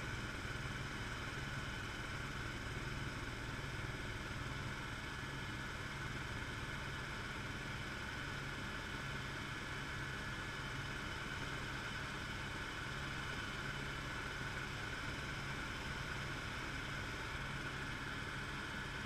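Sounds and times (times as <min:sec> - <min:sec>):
helicopter engine and rotor drone: 0:00.0 - 0:19.0.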